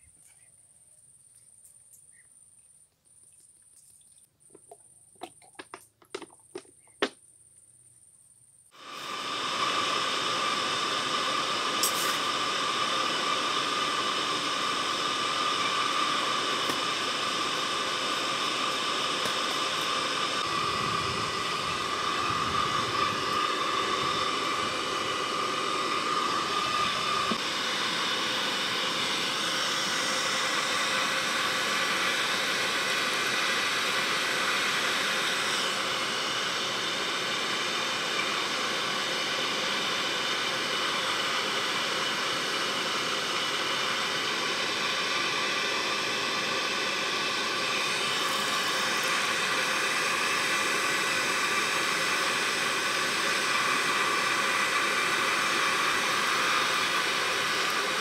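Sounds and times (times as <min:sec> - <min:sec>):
forge air blower hissing: 0:08.7 - 0:58.0
high whine: 0:08.7 - 0:58.0.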